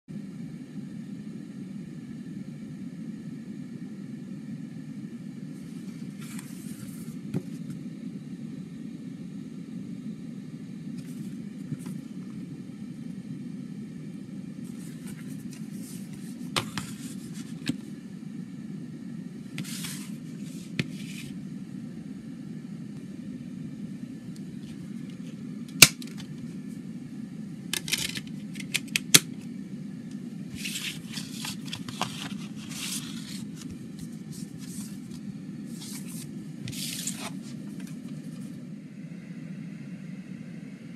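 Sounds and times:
low background hum: 0.1s - 40.9s
card and paper rustling: 5.6s - 7.7s, 11.0s - 12.2s, 14.7s - 17.9s, 19.6s - 21.4s, 27.8s - 29.3s, 30.5s - 38.6s.

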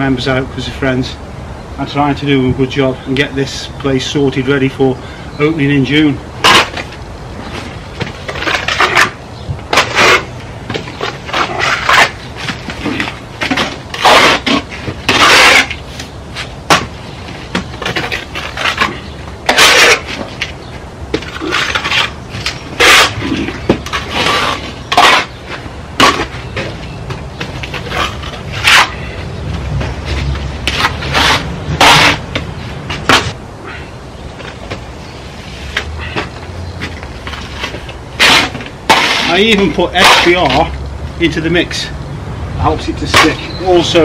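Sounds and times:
trowel scraping render: 6.0s - 26.8s, 27.4s - 29.3s, 30.0s - 33.4s, 37.2s - 40.8s, 42.7s - 44.0s.

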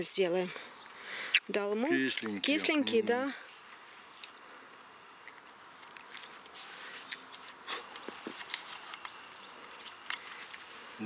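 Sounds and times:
insect chirring and buzzing: 0.0s - 11.0s
light rustles and clicks: 5.3s - 10.7s.

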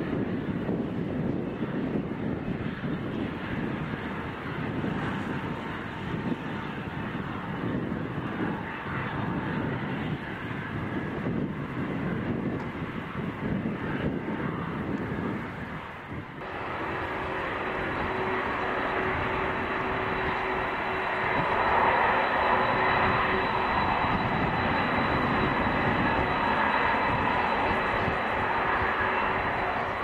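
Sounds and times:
high steady engine whine: 0.0s - 30.0s
jet engine rush: 0.0s - 30.0s.

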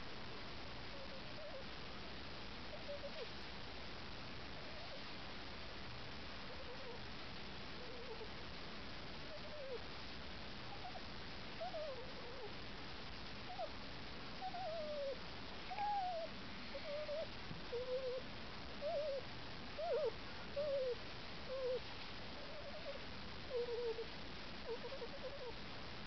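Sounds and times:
puppy whimpering: 0.9s - 1.6s, 2.7s - 3.3s, 4.6s - 5.0s, 6.5s - 7.0s, 7.8s - 8.3s, 9.3s - 9.8s, 10.7s - 11.0s, 11.6s - 12.5s, 13.5s - 13.7s, 14.4s - 18.2s, 18.8s - 19.2s, 19.8s - 21.8s, 22.4s - 24.1s, 24.7s - 25.6s.

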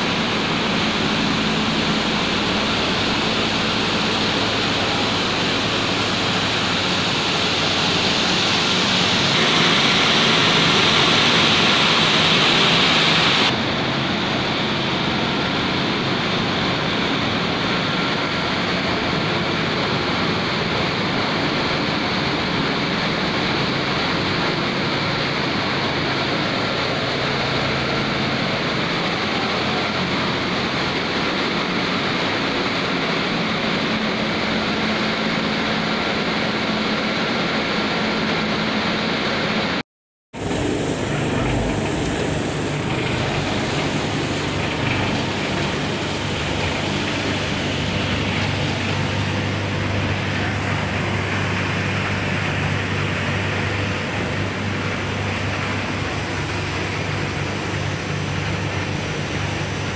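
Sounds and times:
loud rushing hiss: 0.0s - 39.7s, 40.4s - 59.9s
industrial machinery drone: 0.0s - 59.9s
faint steady whine: 40.4s - 59.9s.

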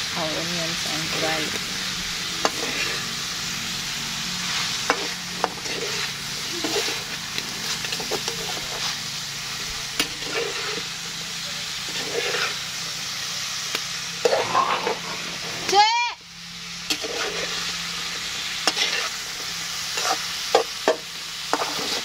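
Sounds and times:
food sizzling in wok: 0.0s - 22.0s
metal spatula scraping pan: 1.0s - 9.0s, 10.0s - 11.1s, 11.8s - 12.6s, 14.2s - 15.8s, 16.9s - 17.9s, 18.6s - 22.0s.

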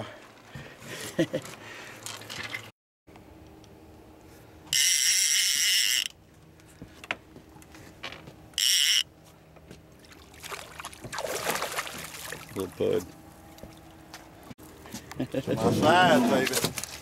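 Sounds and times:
fishing reel drag buzzing: 4.7s - 6.2s, 8.6s - 9.1s.

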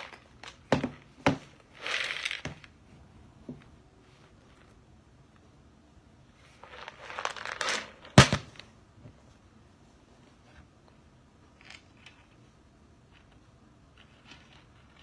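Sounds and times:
beans clicking: 1.6s - 2.8s.

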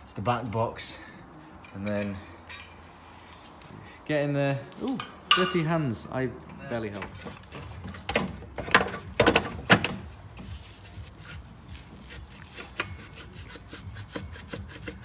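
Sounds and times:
metal exhaust parts clunking: 5.0s - 10.5s.

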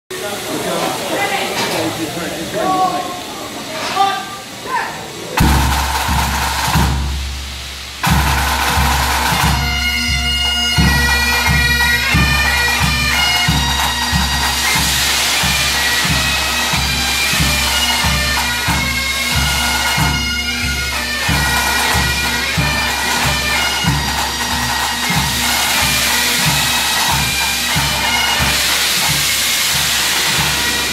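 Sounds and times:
bass drum beating: 5.4s - 12.4s
bagpipes playing: 8.0s - 30.9s.

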